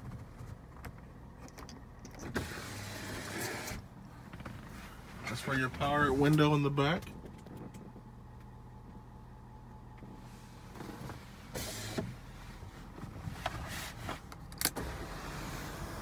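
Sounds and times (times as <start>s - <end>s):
window motor humming: 2.3s - 3.8s, 10.6s - 12.3s, 14.8s - 16.0s.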